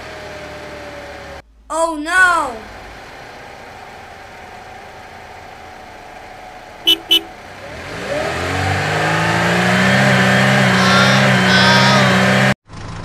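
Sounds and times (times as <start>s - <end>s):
vehicle engine revving: 2.6s - 13.0s
short horn beeps: 6.9s - 7.4s.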